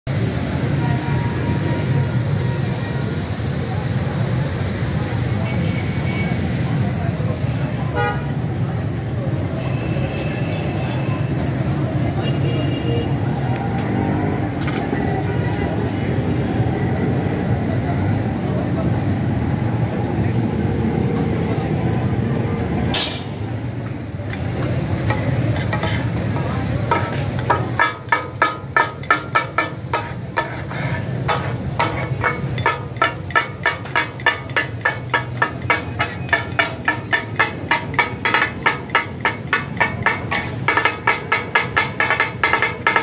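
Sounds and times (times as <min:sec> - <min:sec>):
steel spatulas clacking on griddle: 0:24.2 - 0:43.0.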